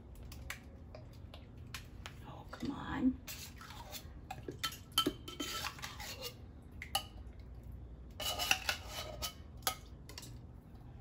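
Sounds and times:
whisk and can clinking on bowl: 3.3s - 6.4s, 8.2s - 10.3s.

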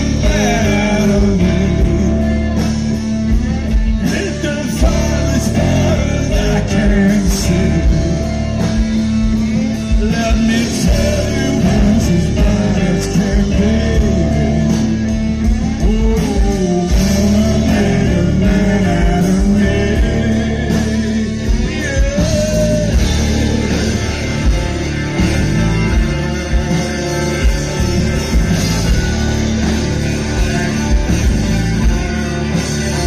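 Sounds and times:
man singing: 0.0s - 3.0s, 4.0s - 24.6s
live rock band playing: 0.0s - 33.0s.

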